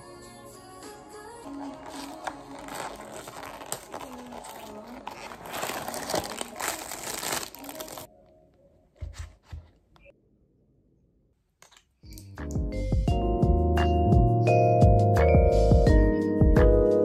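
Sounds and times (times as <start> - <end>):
packaging crumpling and crackling: 1.4 - 8.1.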